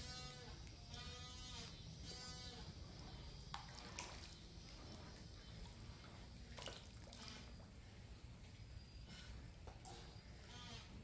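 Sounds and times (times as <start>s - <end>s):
fish and turtle splashing water: 0.5s - 8.0s.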